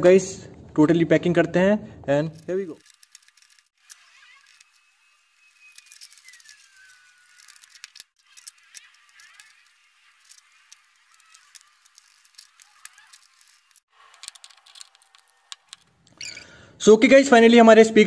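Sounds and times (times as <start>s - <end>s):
screwdriver and plastic clicks: 5.7s - 16.3s.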